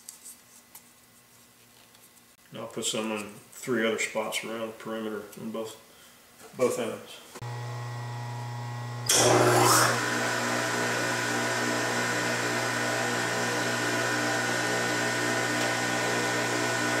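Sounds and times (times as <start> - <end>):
electric motor whine and hum: 7.4 - 17.0
phase converter running: 7.4 - 17.0.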